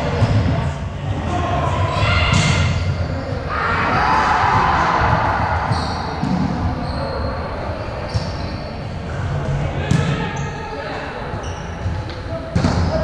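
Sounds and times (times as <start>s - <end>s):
sneaker squeaks: 5.6s - 9.0s, 9.9s - 12.9s.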